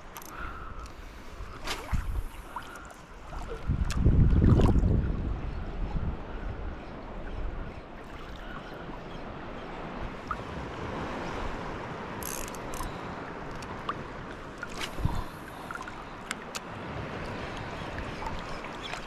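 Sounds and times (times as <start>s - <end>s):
wind: 0.0s - 19.0s
sea water washing: 12.6s - 19.0s.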